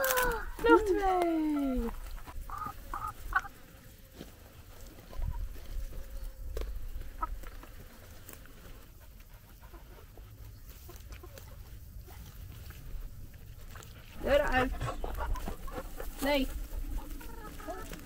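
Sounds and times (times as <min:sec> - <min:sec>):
chickens clucking softly: 0:01.5 - 0:03.5, 0:04.8 - 0:08.0, 0:08.6 - 0:12.8, 0:13.7 - 0:18.0.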